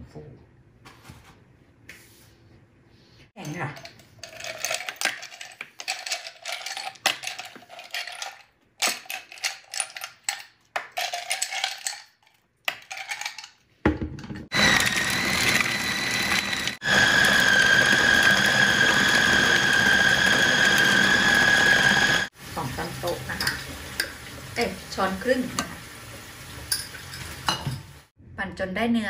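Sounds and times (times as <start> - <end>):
ice cubes clattering into plastic bowl: 4.2 - 12.1
food processor motor whining: 14.5 - 22.4.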